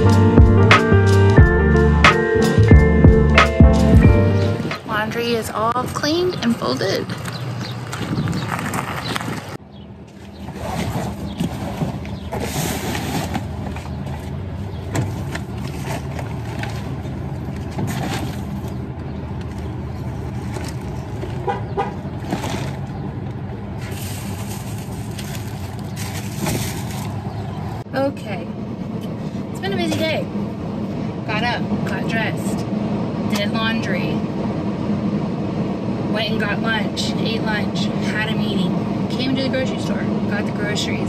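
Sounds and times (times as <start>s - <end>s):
road traffic hum: 0.0s - 41.0s
plastic bags rustling: 10.4s - 18.8s, 19.4s - 23.2s, 23.8s - 27.6s.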